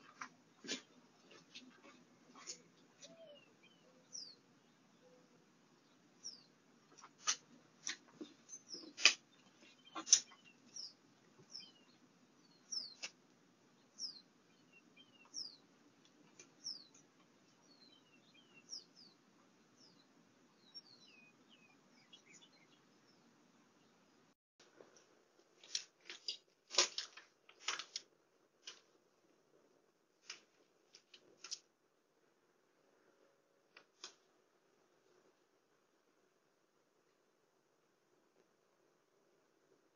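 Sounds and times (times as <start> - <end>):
small birds chirping: 0.0 - 24.3
faint low hum: 0.0 - 39.9.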